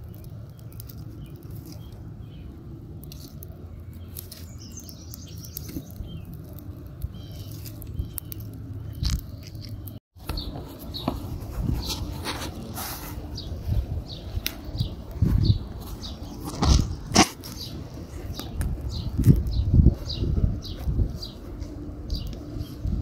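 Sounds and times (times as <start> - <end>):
steady low rumble: 0.0 - 23.0
twigs crackling in a fire: 0.0 - 23.0
bird chirps: 3.2 - 6.4, 7.0 - 9.2.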